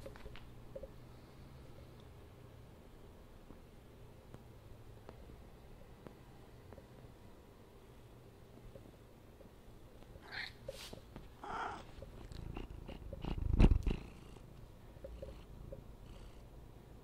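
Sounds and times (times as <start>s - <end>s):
cat purring: 11.4s - 16.6s.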